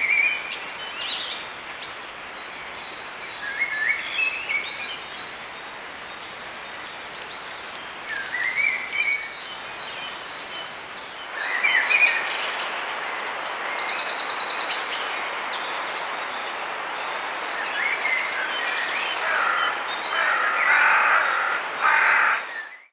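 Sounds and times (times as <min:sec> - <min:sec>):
songbirds chirping and trilling: 0:00.0 - 0:22.9
harsh bird calls: 0:18.2 - 0:22.9.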